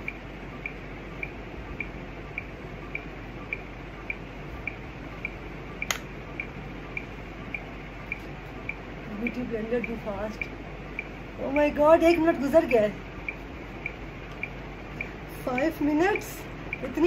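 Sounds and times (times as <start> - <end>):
timer ticking: 0.0 - 17.0
sharp click: 5.2 - 6.1.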